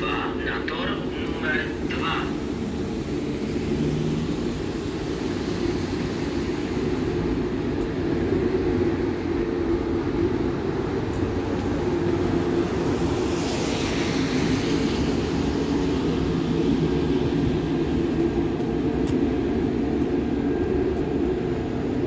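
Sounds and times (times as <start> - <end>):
hiss: 3.2 - 7.6.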